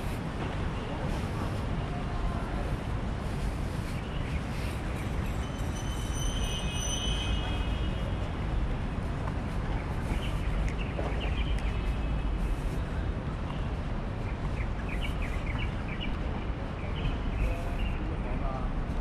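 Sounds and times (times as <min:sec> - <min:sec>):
city background rumble: 0:00.0 - 0:19.0
thin high squeal: 0:05.4 - 0:07.6.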